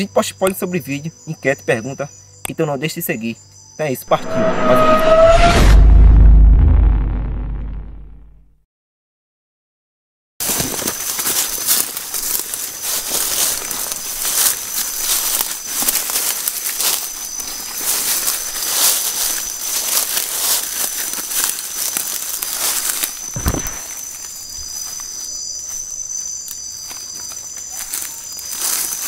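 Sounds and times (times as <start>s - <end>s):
crickets trilling: 0.0s - 4.4s, 10.4s - 29.0s
low bump: 4.1s - 8.5s
footsteps crunching through dry leaves: 10.4s - 29.0s.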